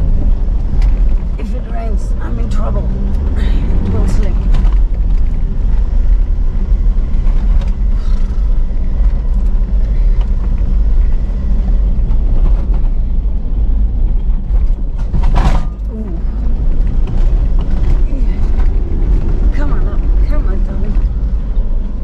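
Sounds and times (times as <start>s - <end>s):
tyres rumbling on dirt track: 0.0s - 22.0s
vehicle engine running: 0.0s - 22.0s
vehicle knocking over ruts: 0.0s - 22.0s.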